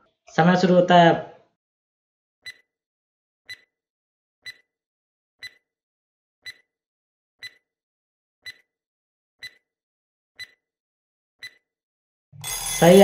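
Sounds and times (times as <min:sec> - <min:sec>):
clock ticks: 0:06.4 - 0:06.6, 0:08.4 - 0:08.6.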